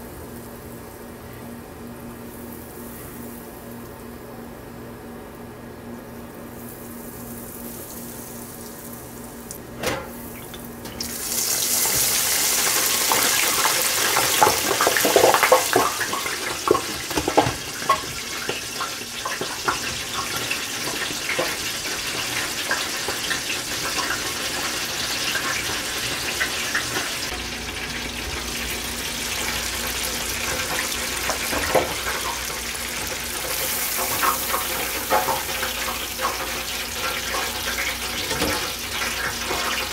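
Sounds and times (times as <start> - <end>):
fish deep-frying in oil: 10.2 - 39.9.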